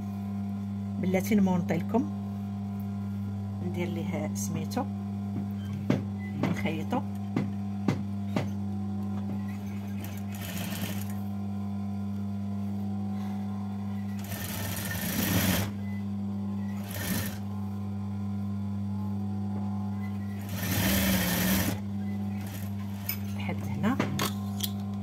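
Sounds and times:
sewing machine stitching: 9.5 - 11.1, 14.2 - 15.7, 16.8 - 17.4, 20.4 - 21.8.

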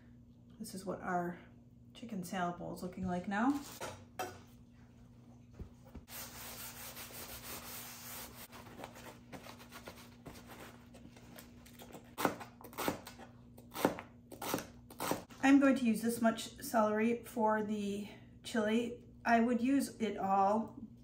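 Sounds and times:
paper towel rustling on celery: 5.6 - 11.6.

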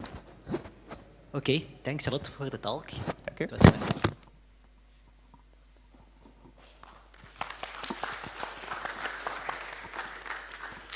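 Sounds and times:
audience applauding: 6.8 - 10.9.

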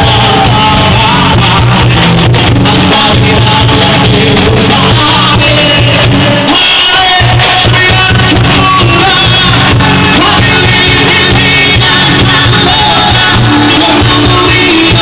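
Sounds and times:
woman singing lead: 0.0 - 15.0.

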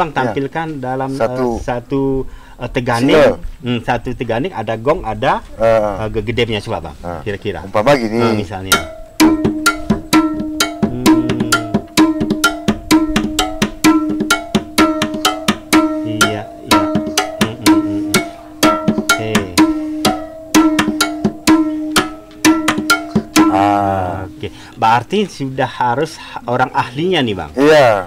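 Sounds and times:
bamboo zither struck rhythmically: 8.2 - 24.8.

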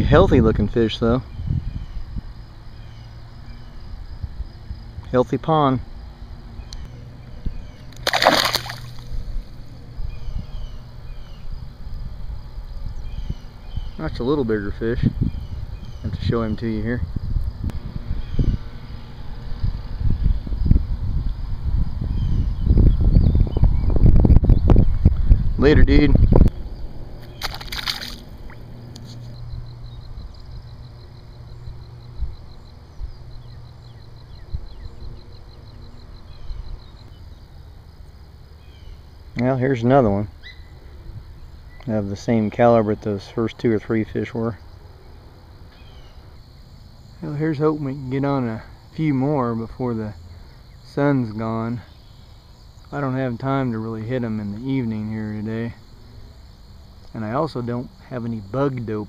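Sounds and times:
falling bird chirps: 6.6 - 9.2, 27.2 - 29.4
insect calling in pulses: 6.6 - 16.1, 26.2 - 30.8, 44.6 - 49.3
fish splash: 7.9 - 9.2, 27.2 - 28.6.

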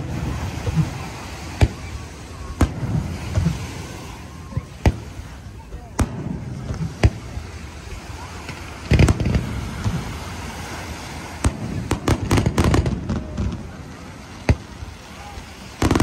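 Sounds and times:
fireworks bursting: 0.0 - 16.0.

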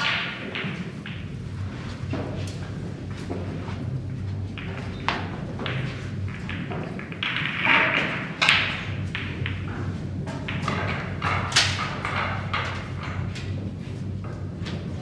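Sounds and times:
low steady hum: 0.0 - 15.0
ball knocking: 4.3 - 13.3.

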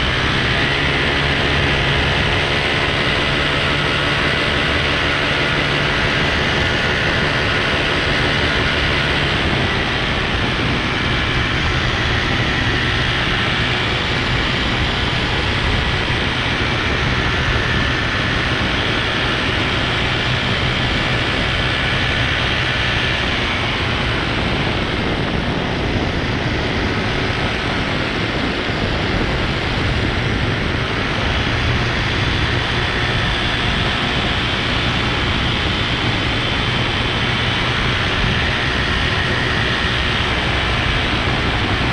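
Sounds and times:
pitched engine hum: 0.0 - 41.9
propellers and wind rushing: 0.0 - 41.9.

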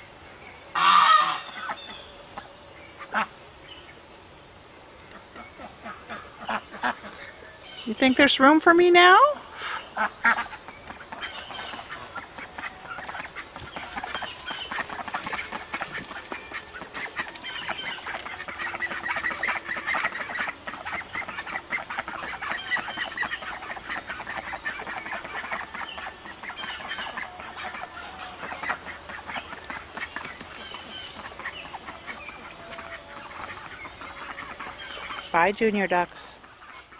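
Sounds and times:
ducks quacking: 0.8 - 2.0, 3.0 - 3.4, 5.1 - 36.9
chickens clucking: 9.4 - 36.9.

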